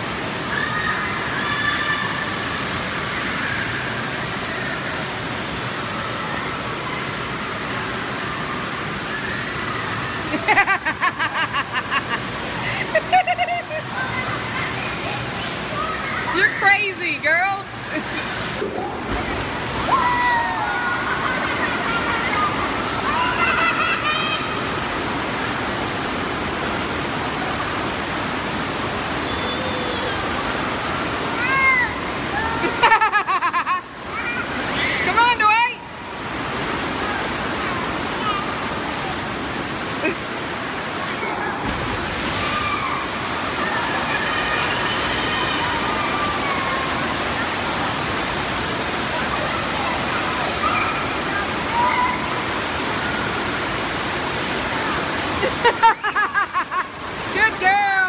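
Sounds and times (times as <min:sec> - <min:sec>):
pool water washing: 0:00.0 - 0:58.0
faint children's voices: 0:13.5 - 0:16.7, 0:19.8 - 0:25.9, 0:36.9 - 0:39.6, 0:42.4 - 0:53.7.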